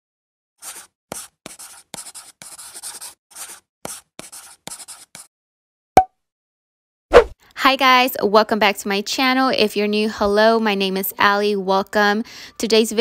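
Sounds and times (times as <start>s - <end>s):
pen scratching on paper: 0.6s - 5.3s.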